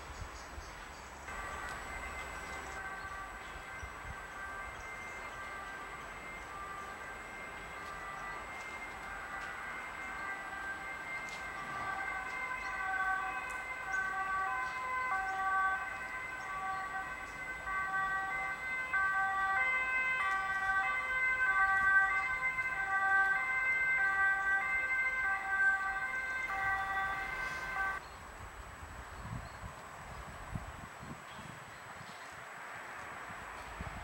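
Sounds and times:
two-tone emergency siren: 0:01.3 - 0:28.0.

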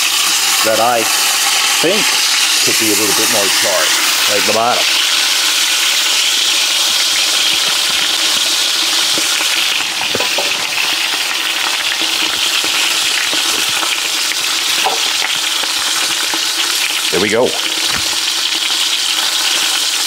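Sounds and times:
meat sizzling in hot fat: 0:00.0 - 0:20.0.

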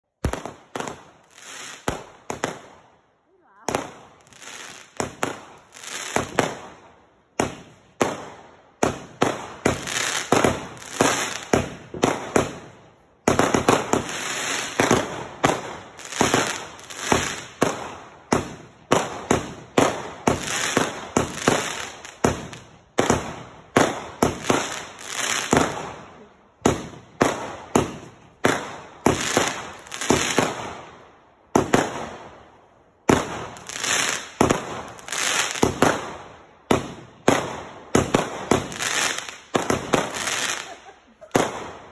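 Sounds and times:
fireworks bursting with sharp bangs: 0:00.0 - 0:41.9.

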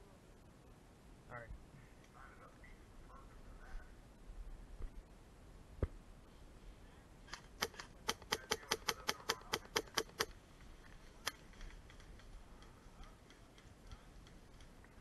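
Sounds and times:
airsoft rifle shots: 0:07.3 - 0:10.3.

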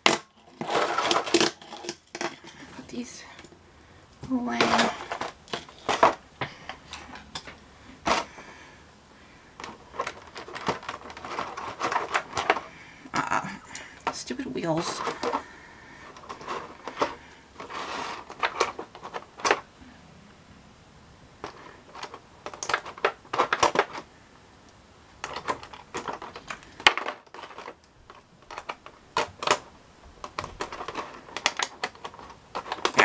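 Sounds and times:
plastic tray clicking and crinkling: 0:00.0 - 0:03.5, 0:04.5 - 0:08.3, 0:09.6 - 0:12.8, 0:13.7 - 0:19.7, 0:21.4 - 0:24.1, 0:25.2 - 0:33.0
plastic snapping: 0:25.2 - 0:33.0.

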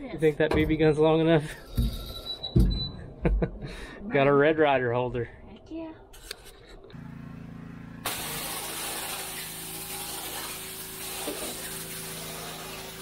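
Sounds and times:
pressure washer motor drone: 0:06.9 - 0:13.0
high-pressure spray hissing: 0:08.0 - 0:13.0.

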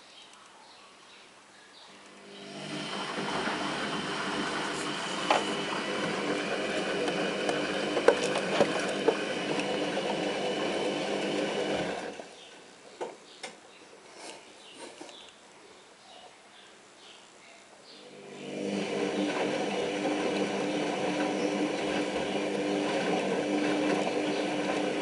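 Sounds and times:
washing machine drum motor: 0:02.2 - 0:12.3, 0:18.1 - 0:25.0.

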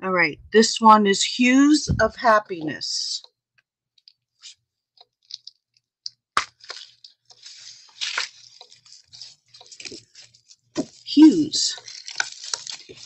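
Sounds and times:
cellophane crinkling: 0:05.2 - 0:13.0.

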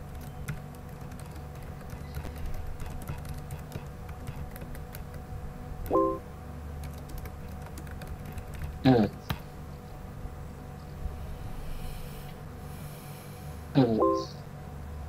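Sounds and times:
keyboard typing clicks: 0:00.0 - 0:05.2, 0:06.8 - 0:09.4
steady low hum: 0:00.0 - 0:15.0.

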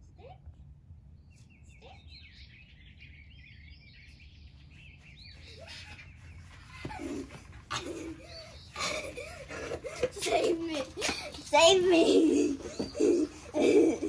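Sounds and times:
low steady outdoor rumble: 0:00.0 - 0:14.0
songbirds chirping: 0:00.0 - 0:14.0
rising and falling pitched cries: 0:05.4 - 0:14.0.

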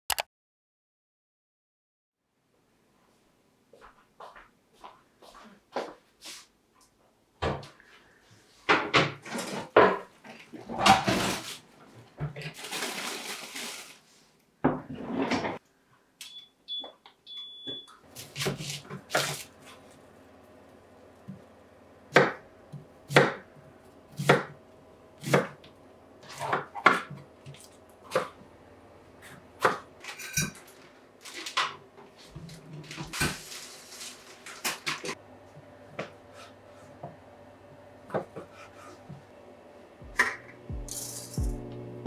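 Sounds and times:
knife chopping on wooden board: 0:22.1 - 0:23.5, 0:24.1 - 0:24.6, 0:25.2 - 0:25.6.

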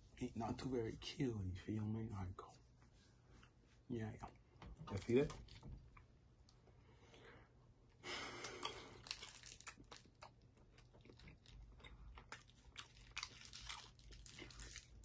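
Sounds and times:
candy crunch: 0:08.3 - 0:15.0.

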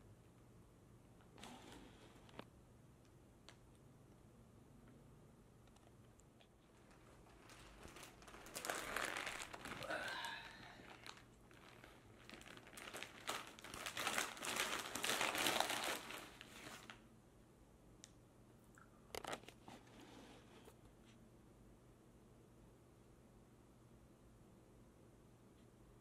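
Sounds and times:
paper bag crinkling: 0:06.6 - 0:17.0.

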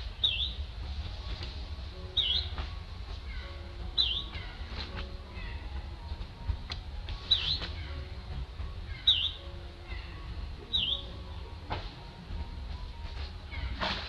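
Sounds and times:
low rumble: 0:00.0 - 0:14.0
bird calling high notes: 0:02.1 - 0:02.6, 0:03.2 - 0:06.1, 0:07.2 - 0:11.4.

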